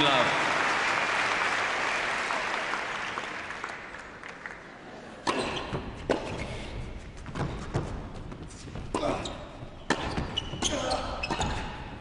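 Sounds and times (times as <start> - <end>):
audience applause: 0.0 - 4.9.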